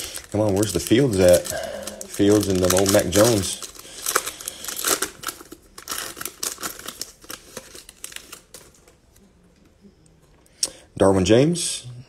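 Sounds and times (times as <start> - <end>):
plastic wrapper crinkling and tearing: 0.0 - 9.0.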